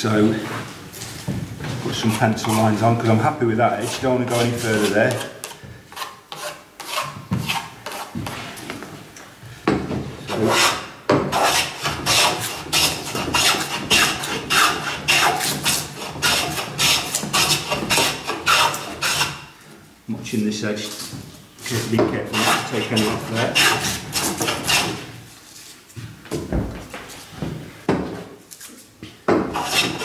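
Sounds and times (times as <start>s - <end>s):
hand plane shaving wood: 5.9s - 8.4s, 10.3s - 19.4s, 21.7s - 25.0s, 29.5s - 30.0s.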